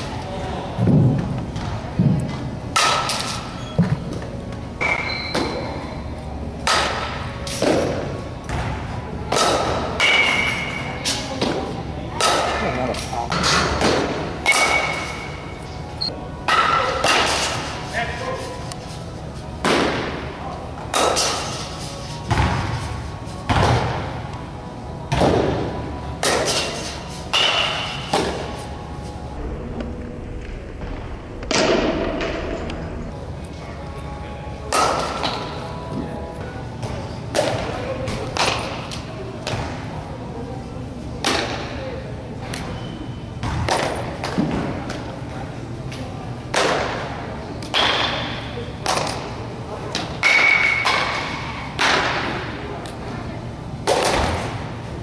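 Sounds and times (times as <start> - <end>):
balls hitting netting and walls: 0.0 - 29.3, 30.8 - 33.7, 34.5 - 55.0
bat striking softballs: 2.7 - 3.4, 6.6 - 8.0, 9.3 - 10.8, 13.3 - 15.3, 49.9 - 52.4
softball thuds in echoing hall: 6.6 - 10.8, 22.3 - 22.8, 23.5 - 24.1, 25.1 - 26.5, 31.4 - 32.7, 43.4 - 45.0, 53.8 - 54.7.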